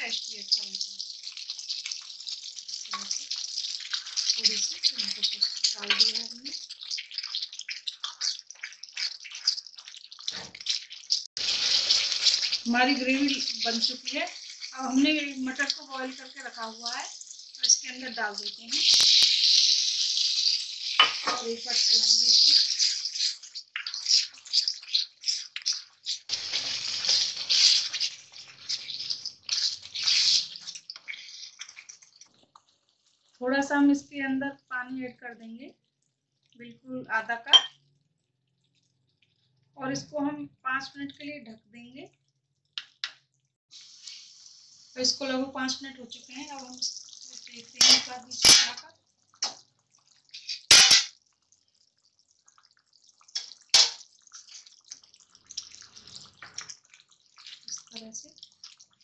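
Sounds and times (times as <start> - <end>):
wet pops and splutters: 0.0 - 15.9, 17.5 - 32.6, 46.6 - 51.1, 52.4 - 59.0
spatula stirring thick gravy: 0.0 - 33.4, 43.8 - 48.4, 49.0 - 59.0.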